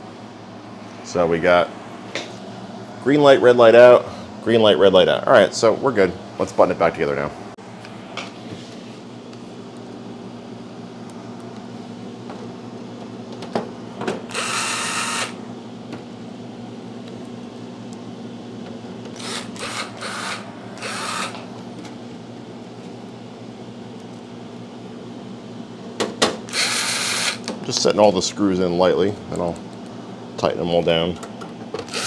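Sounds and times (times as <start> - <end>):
steady low hum: 0.0 - 32.0
cordless drill driving screws: 14.3 - 15.4, 19.2 - 21.4, 26.5 - 27.4.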